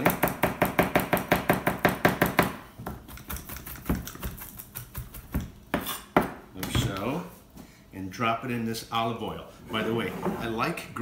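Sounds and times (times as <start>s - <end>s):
knife chopping on cutting board: 0.0s - 6.9s.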